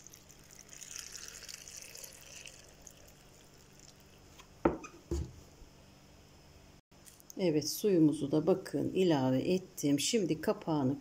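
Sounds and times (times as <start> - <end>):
water pouring into jar: 0.0 - 4.3.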